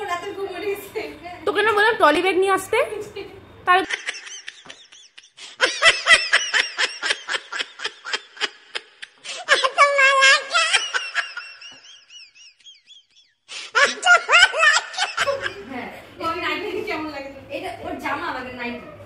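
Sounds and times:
women laughing: 3.1 - 15.8.

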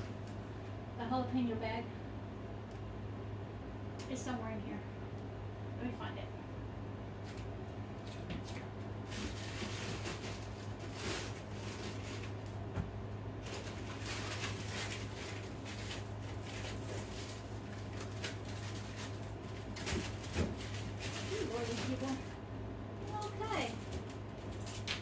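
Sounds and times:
steady low hum: 0.0 - 25.0
frozen food bags rustling: 9.0 - 12.7, 13.4 - 22.4, 23.0 - 25.0.

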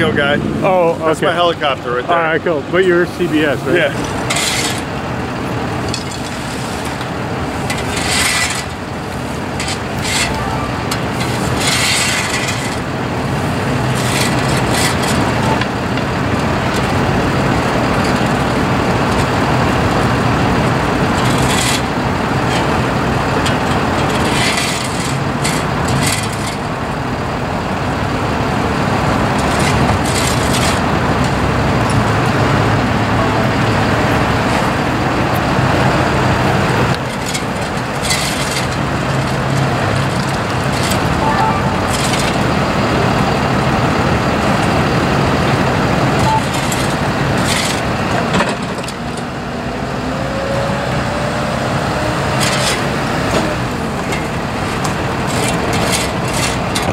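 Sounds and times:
truck engine idling: 0.0 - 49.2
road traffic passing: 0.0 - 56.9
brief high-pitched noises: 10.1 - 11.1, 40.9 - 42.8.

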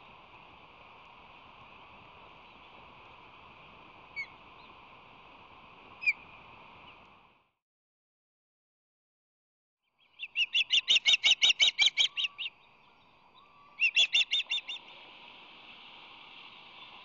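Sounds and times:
steady hiss: 0.0 - 7.4, 12.4 - 17.0
high osprey chirps: 6.0 - 6.2, 10.0 - 14.9.

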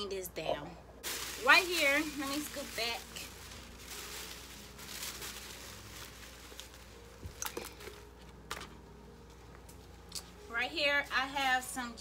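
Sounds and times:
paper rustling and crinkling: 1.0 - 8.8.

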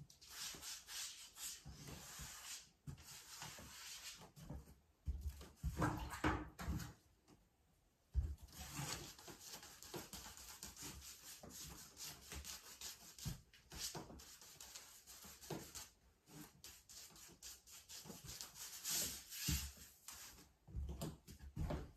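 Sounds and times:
paint scrubbed on canvas: 0.1 - 4.5, 8.5 - 20.5.

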